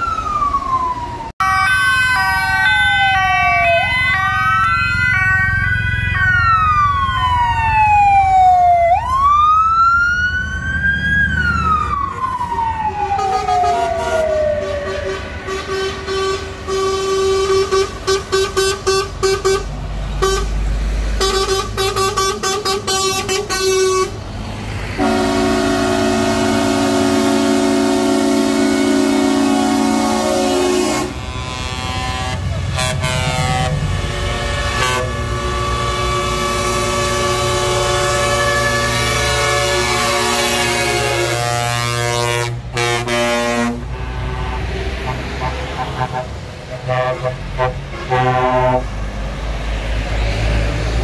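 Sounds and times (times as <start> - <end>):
siren stepping between tones: 0.0 - 14.7
lorry engines rumbling: 0.0 - 51.0
sirens wailing: 0.0 - 51.0
truck air horn blasts: 13.2 - 24.2, 25.0 - 49.0
multi-note air horn chord: 25.0 - 44.6.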